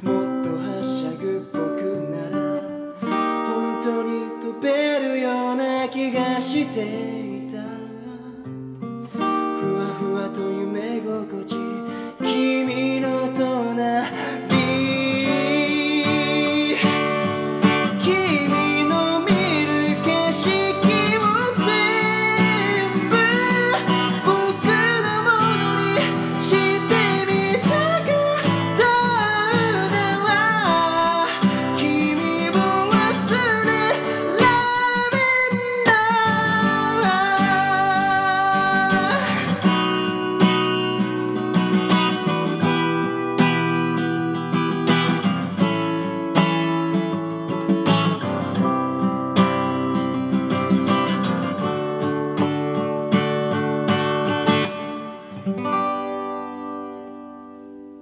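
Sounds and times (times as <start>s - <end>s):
man singing: 0.0s - 8.6s, 9.2s - 44.2s
acoustic guitar strumming: 0.0s - 58.0s.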